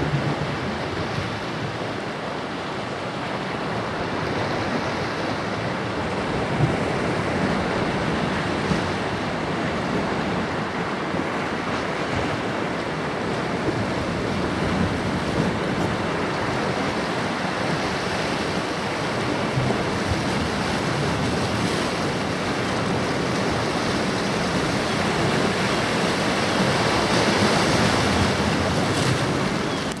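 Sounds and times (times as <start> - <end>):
waves breaking on rocky shore: 0.0 - 30.0.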